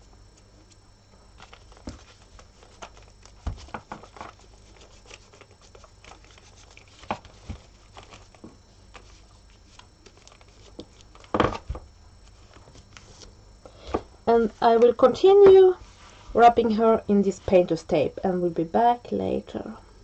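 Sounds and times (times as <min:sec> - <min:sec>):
hands handling wrapped doll: 0:01.4 - 0:11.6.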